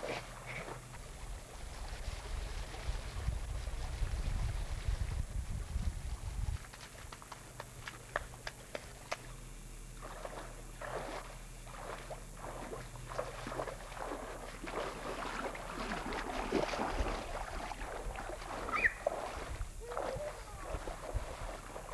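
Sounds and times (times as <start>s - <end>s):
person wading through water: 9.9s - 21.9s.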